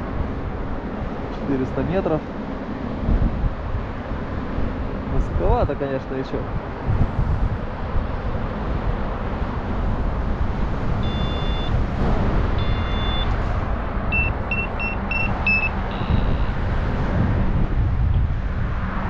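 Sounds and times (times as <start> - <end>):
wind rushing over microphone: 0.0 - 19.0
variometer beeping: 11.0 - 11.8, 12.6 - 13.4, 14.1 - 16.7.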